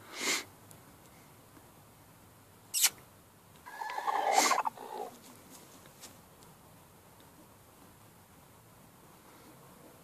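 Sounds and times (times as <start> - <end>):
squeaky animal call: 2.7 - 3.0, 3.7 - 5.1.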